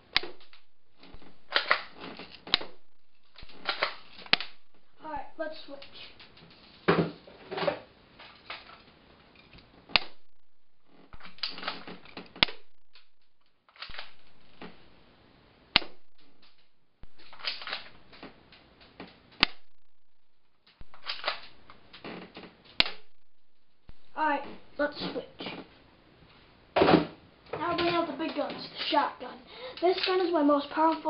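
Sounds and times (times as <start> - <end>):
airsoft gun shots: 20.8 - 21.7, 22.8 - 23.1.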